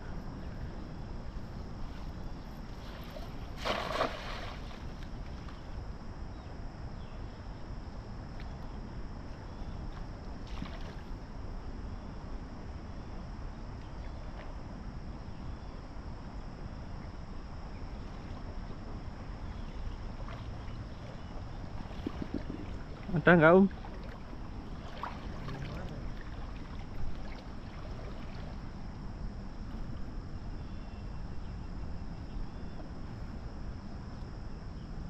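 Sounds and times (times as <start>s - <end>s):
flowing river water: 2.8s - 5.4s, 18.0s - 29.1s
wind on microphone: 20.8s - 23.0s.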